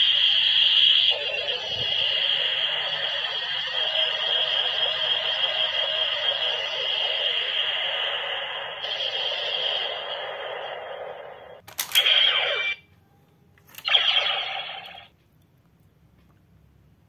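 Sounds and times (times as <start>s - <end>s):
toy electronic sound effects: 0.0s - 10.9s, 11.7s - 12.8s, 13.7s - 15.1s
sharp plastic click: 11.6s - 12.1s.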